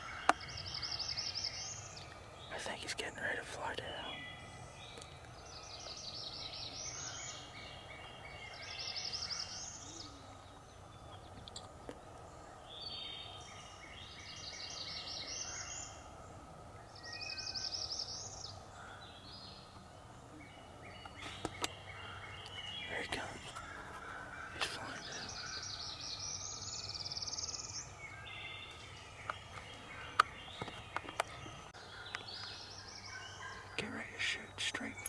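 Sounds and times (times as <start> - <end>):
birds chattering calls: 0.0 - 35.0
songbird trilled song: 16.8 - 23.8, 24.4 - 35.0.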